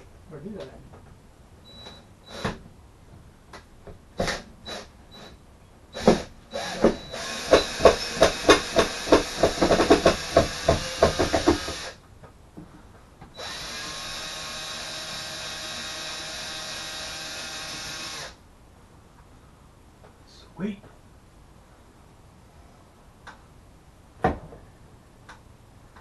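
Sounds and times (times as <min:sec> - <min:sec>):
sharp knocks: 0:06.0 - 0:11.9
power drill running: 0:06.0 - 0:12.0, 0:13.4 - 0:18.4.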